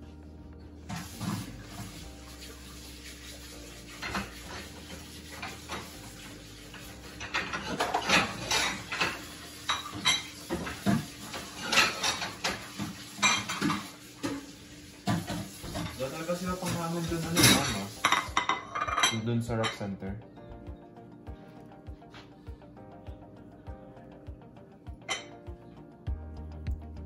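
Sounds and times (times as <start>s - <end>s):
dishes and cutlery clinking: 0.9s - 20.0s, 25.0s - 25.5s.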